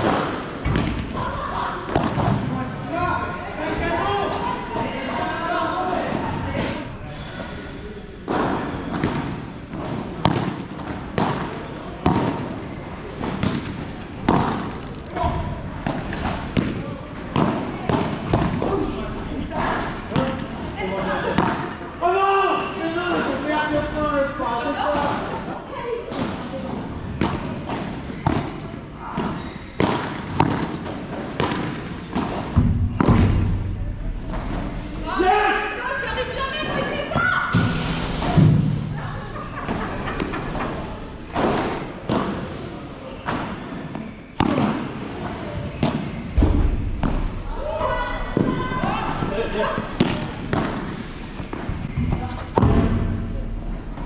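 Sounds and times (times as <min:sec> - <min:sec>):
ball bouncing off court and walls: 0:00.0 - 0:01.2, 0:27.1 - 0:35.0, 0:41.3 - 0:54.0
rackets hitting ball: 0:00.0 - 0:01.2, 0:01.8 - 0:02.5, 0:08.2 - 0:19.0, 0:21.2 - 0:21.8, 0:27.2 - 0:35.1, 0:37.5 - 0:42.6, 0:43.2 - 0:54.0.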